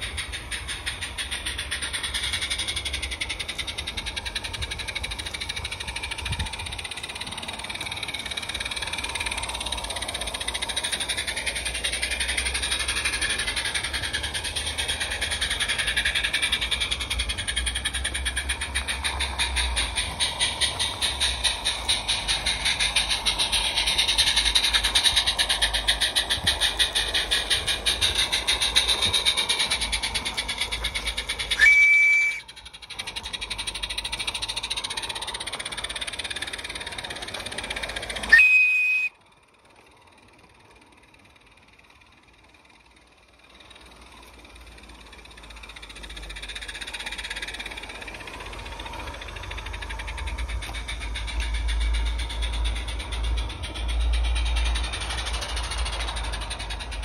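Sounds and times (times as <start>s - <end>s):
steam locomotive exhaust beats: 0.0s - 57.0s
steam whistle blasts: 31.5s - 32.4s, 38.3s - 39.2s.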